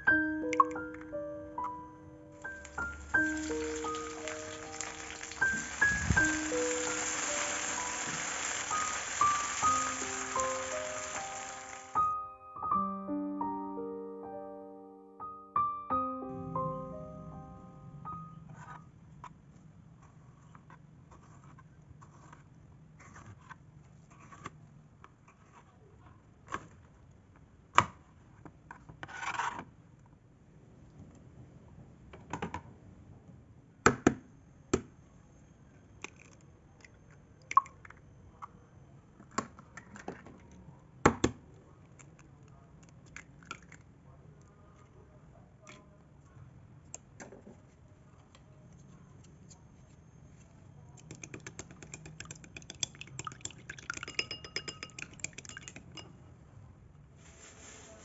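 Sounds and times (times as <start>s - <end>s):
eggs cracking into glass bowl: 2.5s - 11.9s, 51.0s - 56.1s.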